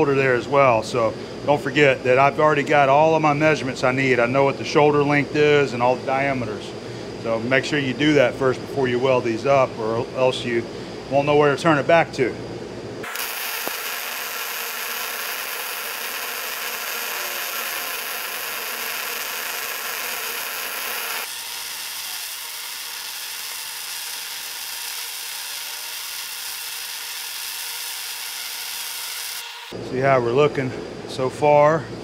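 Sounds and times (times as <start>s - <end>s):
welding arc crackling: 13.0s - 29.8s.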